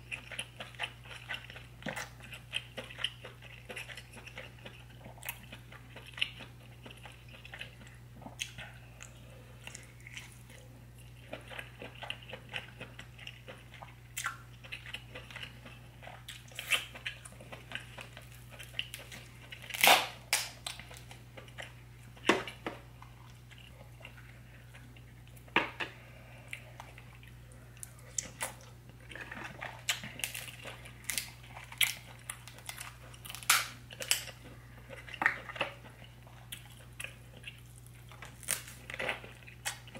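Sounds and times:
wet chewing: 0.0 - 20.0
faint low hum: 0.0 - 39.9
crab shells clicking and snapping: 29.9 - 34.4, 37.6 - 39.9.

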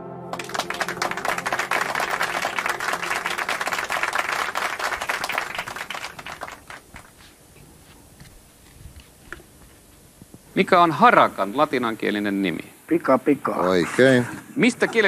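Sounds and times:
audience applauding: 0.3 - 7.3.

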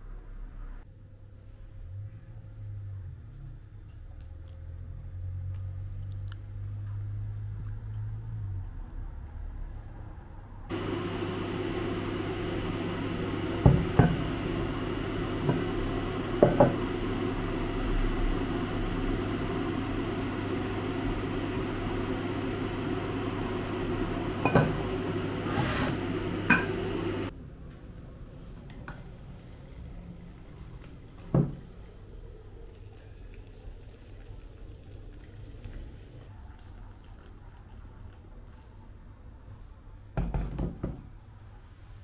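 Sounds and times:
electric appliance hum: 10.6 - 36.3.

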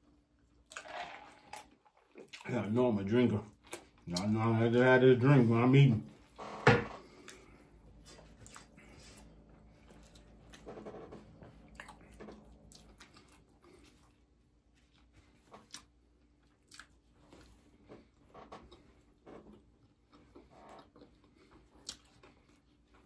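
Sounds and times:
person chewing: 0.4 - 2.5, 3.5 - 4.5, 7.0 - 10.8, 11.6 - 23.0.

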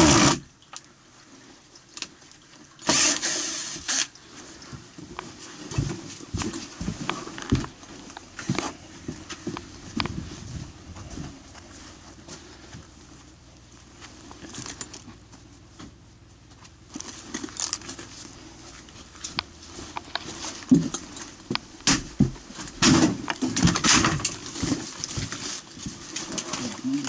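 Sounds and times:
footsteps: 4.4 - 26.8
metal gear clinking and rattling: 16.9 - 18.3.

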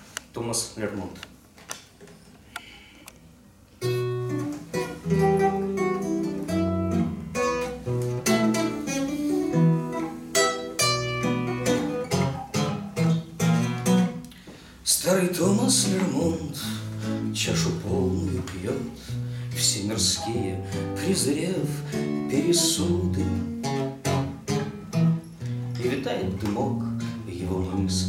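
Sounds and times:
acoustic guitar playing: 3.7 - 28.0.

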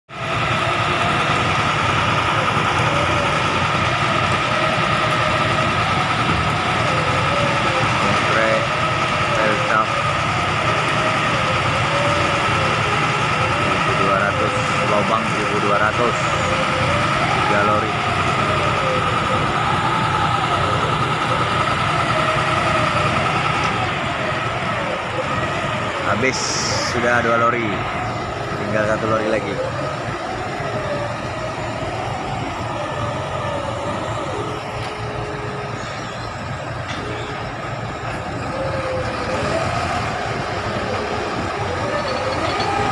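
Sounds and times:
concrete mixer truck engine rumbling: 0.1 - 42.9
high whining tone: 0.2 - 42.9.

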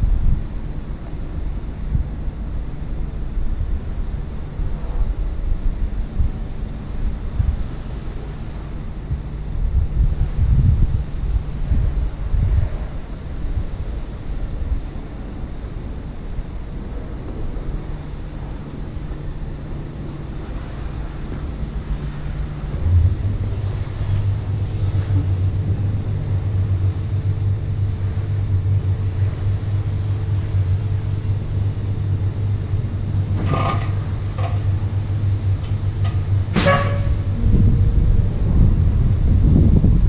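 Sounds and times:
diesel engine idling: 0.0 - 40.0
sharp knock: 36.6 - 37.2.

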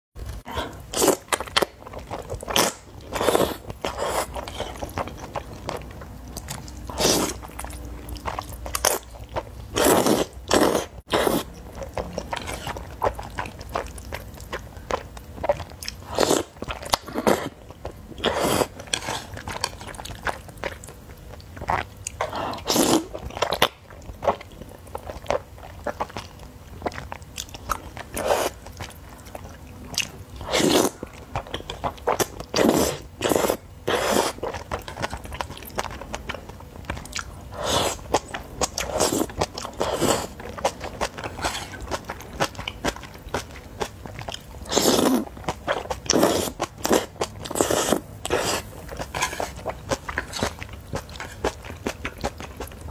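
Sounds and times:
chewing and mouth sounds: 0.2 - 52.9
wet slurping of noodles: 2.6 - 4.8, 6.9 - 7.4, 9.8 - 11.5, 18.2 - 19.4, 22.2 - 23.1, 28.2 - 28.6, 30.4 - 31.0, 32.6 - 34.4, 37.5 - 38.0, 38.8 - 40.4, 44.7 - 45.3, 46.1 - 49.6.

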